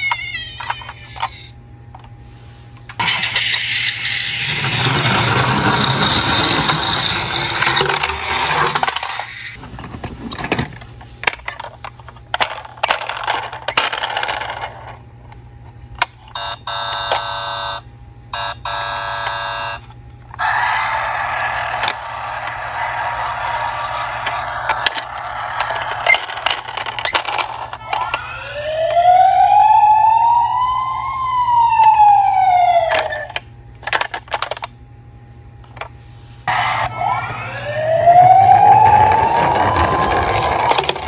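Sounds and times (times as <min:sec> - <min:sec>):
toy siren sound effects: 0:00.0 - 0:01.5, 0:03.0 - 0:08.2, 0:16.4 - 0:17.8, 0:18.4 - 0:19.8, 0:20.4 - 0:33.4, 0:36.5 - 0:41.0
plastic toys clattering: 0:04.8 - 0:15.0, 0:23.8 - 0:28.2, 0:32.9 - 0:34.7, 0:39.5 - 0:41.0.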